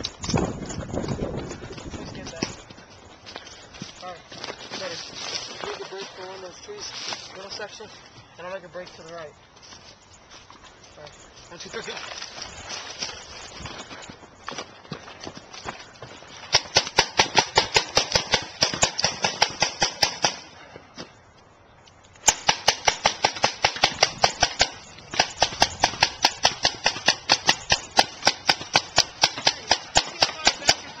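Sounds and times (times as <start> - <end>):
paintball markers firing: 22.2 - 31.0.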